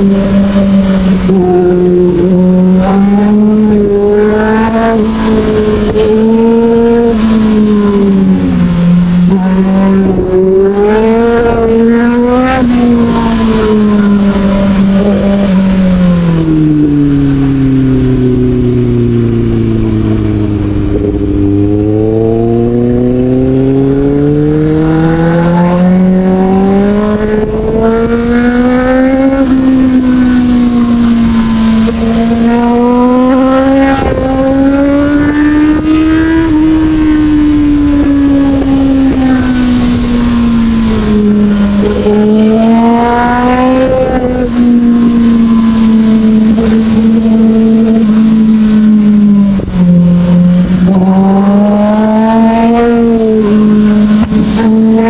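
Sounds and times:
motorcycle engine revving: 0:00.0 - 0:55.0
wind rush: 0:00.0 - 0:55.0.

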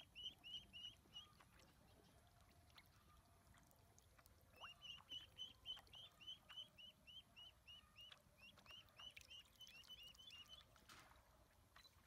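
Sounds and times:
ducklings peeping: 0:00.0 - 0:03.7, 0:04.5 - 0:10.8
faint water splashing: 0:00.0 - 0:12.0.

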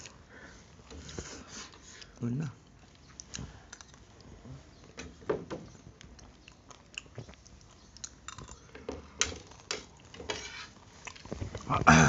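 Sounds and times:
people chewing noodles: 0:00.0 - 0:05.0, 0:05.7 - 0:12.0.

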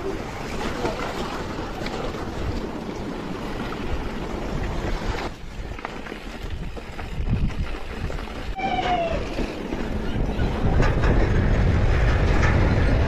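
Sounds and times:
water rushing and splashing: 0:00.0 - 0:05.1
bike tyre noise: 0:00.0 - 0:13.0
tyres ticking on dirt trail: 0:00.0 - 0:13.0
wind on microphone: 0:00.0 - 0:13.0.

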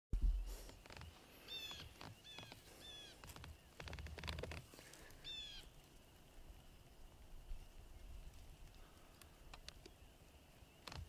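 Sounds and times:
soft rustling: 0:00.4 - 0:06.9.

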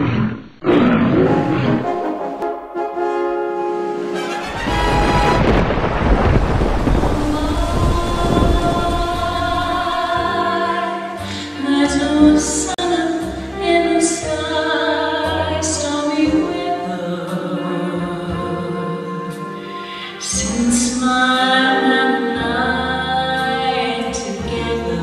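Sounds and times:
instrumental backing: 0:01.7 - 0:06.0
rain and thunder: 0:04.4 - 0:10.3
woman singing slow song: 0:06.9 - 0:25.0.

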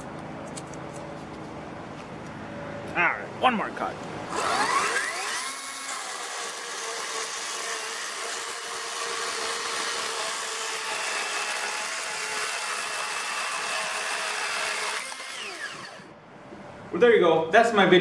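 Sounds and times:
electric chainsaw cutting wood: 0:04.3 - 0:16.1.

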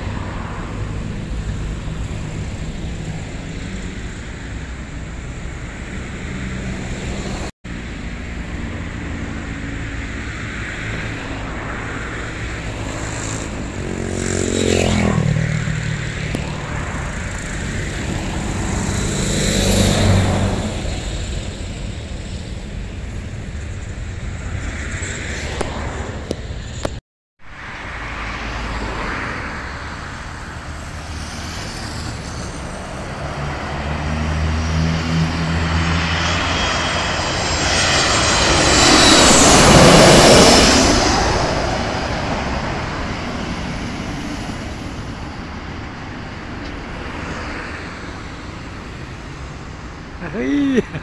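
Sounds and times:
steady engine hum: 0:00.0 - 0:27.0, 0:27.8 - 0:51.0
vehicles passing close by: 0:00.0 - 0:51.0.

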